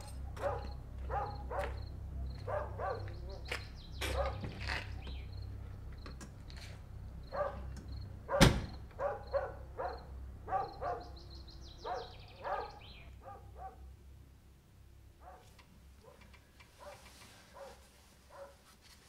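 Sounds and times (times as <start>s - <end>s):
distant dog barking: 0.0s - 4.6s, 7.3s - 13.9s, 15.2s - 18.7s
door shutting: 7.7s - 9.0s.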